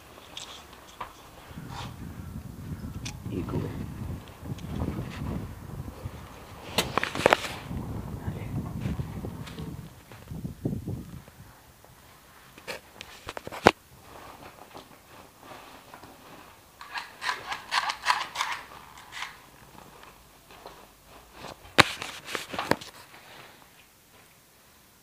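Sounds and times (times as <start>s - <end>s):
scraping and rubbing: 3.0s - 7.7s, 12.5s - 23.6s.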